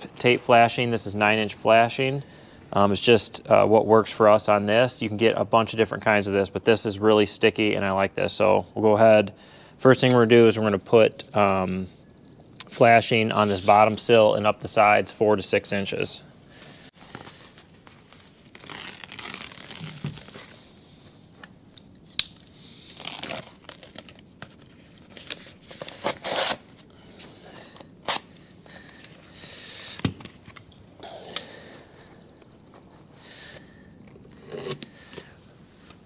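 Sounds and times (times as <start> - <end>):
tape backing peeling and crinkling: 17.0 - 20.6, 22.1 - 29.3.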